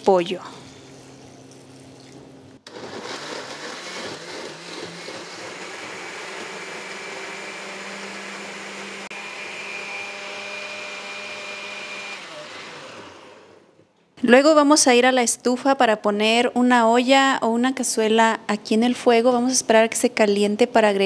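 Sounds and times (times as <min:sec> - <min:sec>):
blender motor running: 0:02.6 - 0:13.8.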